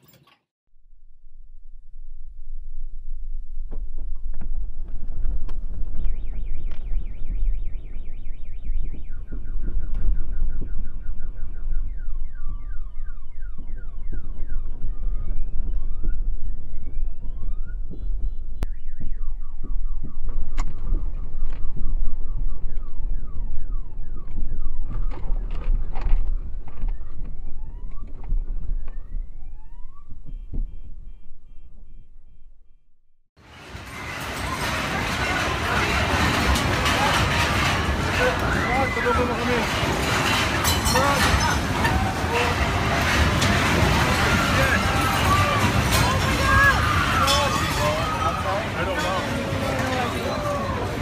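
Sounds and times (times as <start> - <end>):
heavy low rumble: 0.8 - 51.0
car alarms: 6.0 - 20.4, 22.1 - 25.8, 27.0 - 32.5
sharp knocks and rattles: 33.4 - 49.9.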